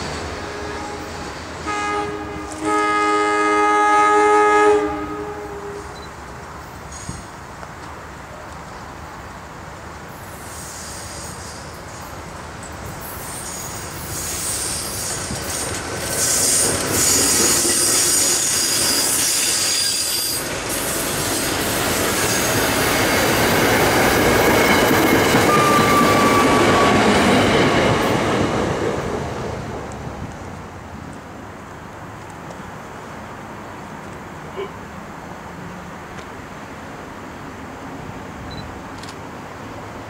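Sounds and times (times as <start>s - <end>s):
electric train passing: 0.0s - 34.1s
high-pitched wheel squeal: 16.2s - 20.4s, 25.5s - 27.1s.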